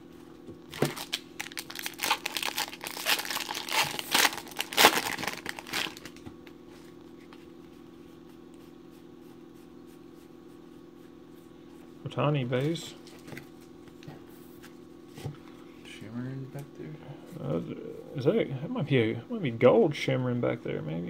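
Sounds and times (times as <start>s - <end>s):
low steady hum: 0.0s - 21.0s
foil wrapper crinkling and tearing: 0.7s - 6.2s.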